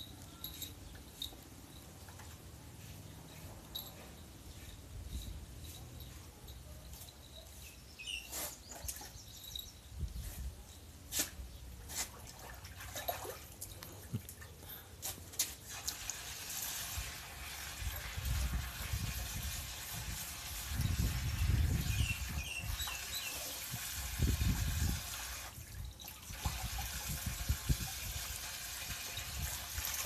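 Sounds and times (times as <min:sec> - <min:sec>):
water splashing in a plastic tub: 0:12.0 - 0:14.5, 0:15.5 - 0:30.0.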